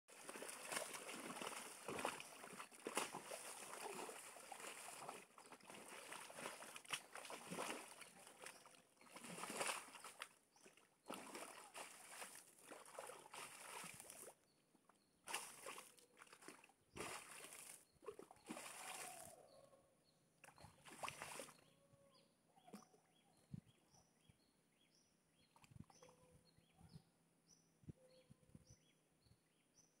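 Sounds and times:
muddy water splashing: 0.1 - 14.4, 15.2 - 19.4, 20.4 - 21.6.

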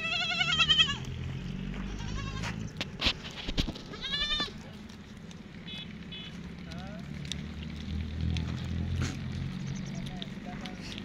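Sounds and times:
goats bleating: 0.0 - 1.2, 1.8 - 2.6, 3.8 - 4.7.

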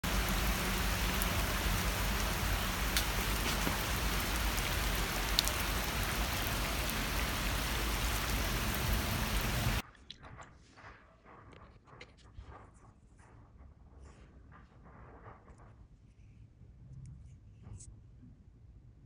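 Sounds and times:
rain pattering on a pond: 0.0 - 9.8.

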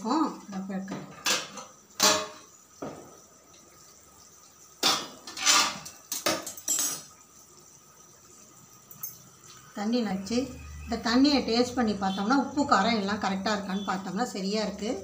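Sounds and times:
metal lid clanking: 1.1 - 2.4, 4.8 - 7.1.

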